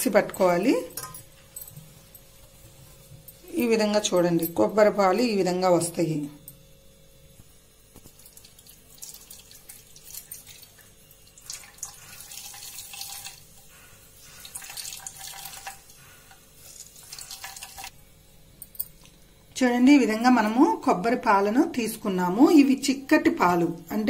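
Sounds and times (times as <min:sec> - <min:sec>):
liquid trickling into steel pot: 0:08.1 - 0:13.6, 0:14.4 - 0:15.9, 0:16.6 - 0:17.9.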